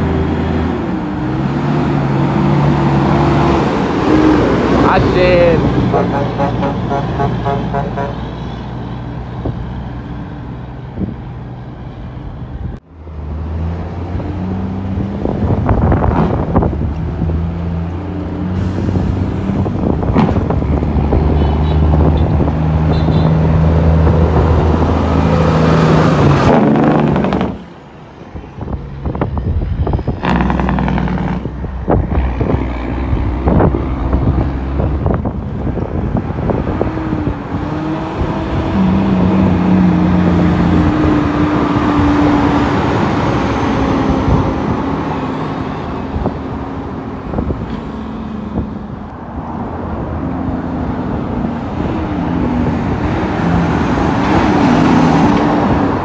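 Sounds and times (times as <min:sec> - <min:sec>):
knocks and clunks: 0:20.0 - 0:20.8.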